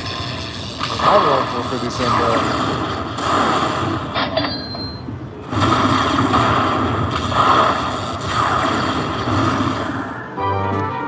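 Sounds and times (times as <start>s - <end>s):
slot machine crackling thunder effects: 5.5s - 10.7s.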